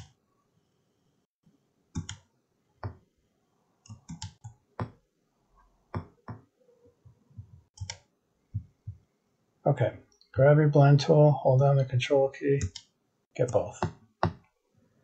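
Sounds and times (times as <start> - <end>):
computer mouse clicking: 2.0 - 3.0, 3.8 - 4.9, 7.7 - 8.1.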